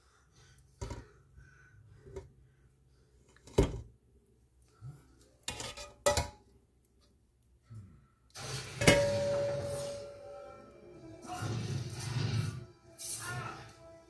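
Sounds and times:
metal pot and strainer clanking: 5.5s - 6.4s, 8.6s - 10.2s.

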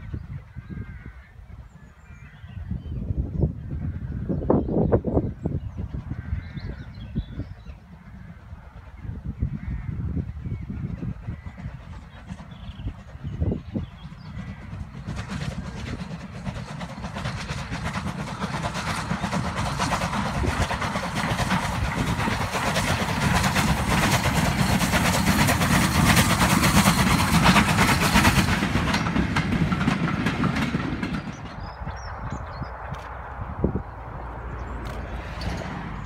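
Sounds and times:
steam locomotive exhaust: 10.0s - 34.0s
wagons rattling over rails: 10.7s - 33.2s, 34.5s - 36.0s.

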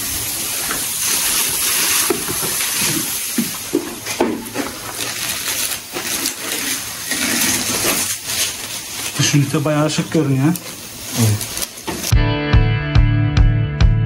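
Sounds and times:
plastic packaging crinkling: 0.9s - 12.1s.

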